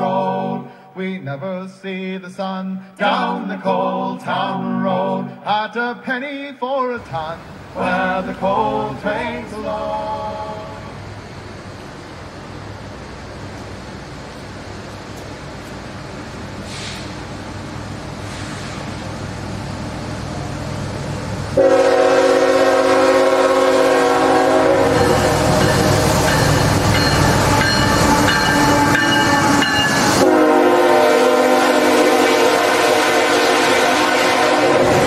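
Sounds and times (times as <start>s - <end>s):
diesel locomotive rumble: 7.0s - 35.0s
freight cars rumbling on rails: 7.0s - 35.0s
train air horn: 21.6s - 26.1s, 27.3s - 35.0s.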